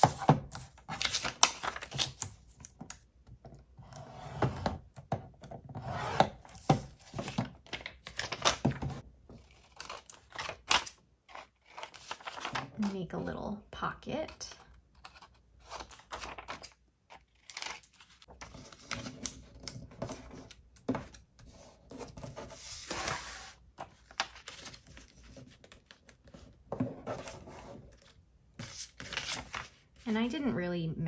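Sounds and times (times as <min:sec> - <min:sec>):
paper folding and creasing: 0:00.0 - 0:03.0, 0:06.4 - 0:12.9, 0:14.7 - 0:30.0
paper sliding against page: 0:22.4 - 0:23.6.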